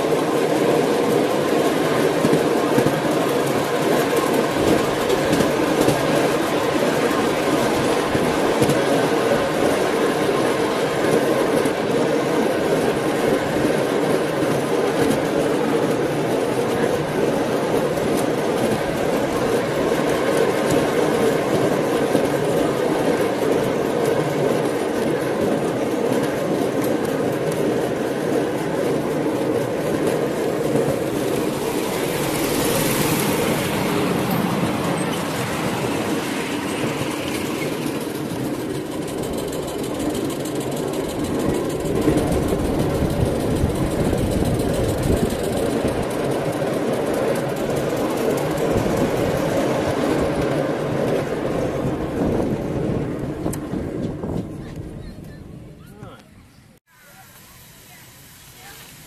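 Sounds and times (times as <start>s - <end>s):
small wheels clattering on rails: 0.0s - 55.5s
brief hiss: 56.9s - 59.0s.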